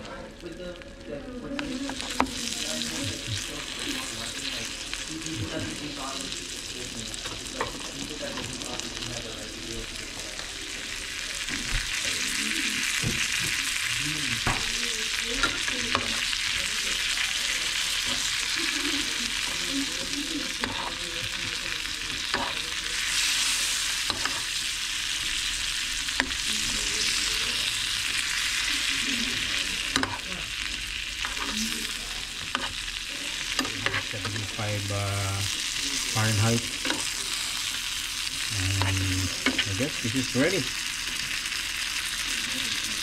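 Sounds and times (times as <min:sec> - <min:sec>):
fish sizzling in a pan: 0:00.0 - 0:43.0
metal spoon scraping a pan: 0:19.5 - 0:21.1, 0:22.2 - 0:24.6, 0:29.8 - 0:30.4, 0:31.2 - 0:34.7, 0:38.8 - 0:39.8.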